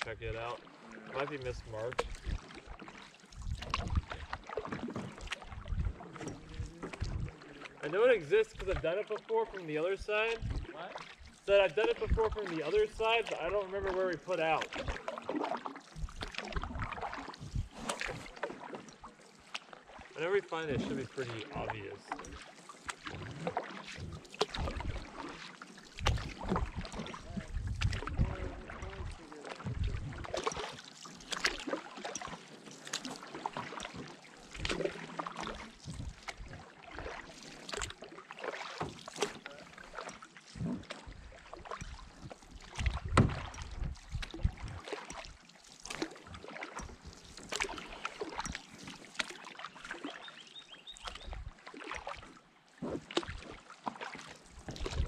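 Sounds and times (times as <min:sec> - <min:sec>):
paddle splashing in water: 0:00.0 - 0:55.0.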